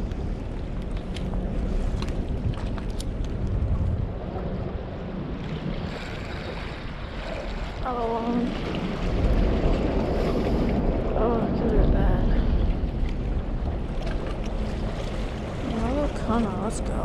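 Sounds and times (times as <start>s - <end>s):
wind buffeting microphone: 0.0s - 17.0s
water moving against rocks: 5.4s - 17.0s.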